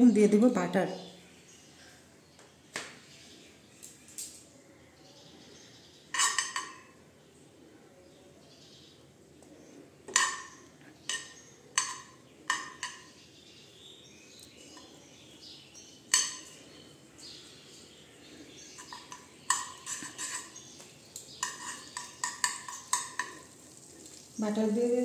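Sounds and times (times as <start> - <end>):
steel spoon clinking on frying pan: 21.4 - 23.4.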